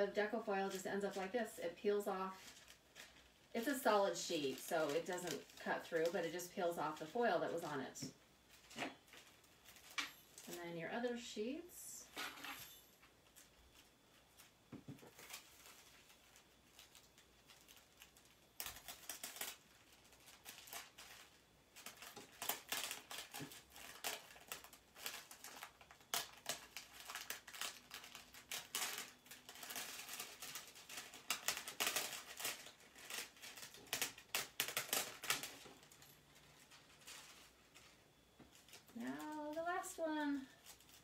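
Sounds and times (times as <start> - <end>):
foil crinkling and crackling: 0.0 - 11.6, 13.0 - 41.0.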